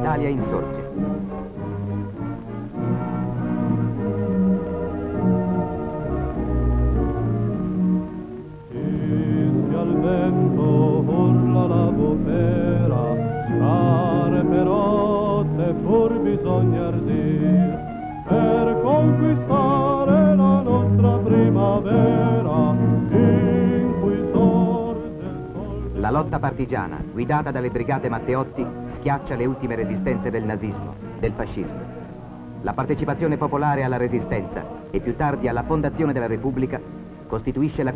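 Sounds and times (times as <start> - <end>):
orchestral chords: 0.0 - 37.9
voices singing with vibrato: 8.6 - 37.9.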